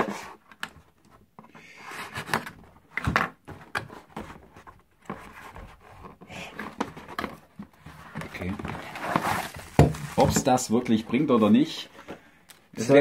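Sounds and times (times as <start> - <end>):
handling knocks and rustles: 2.2 - 11.1.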